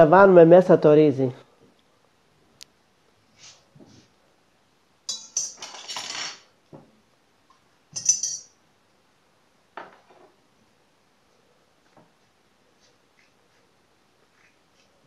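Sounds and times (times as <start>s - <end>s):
teaspoon clinking against glass bowl: 8.0s - 8.5s.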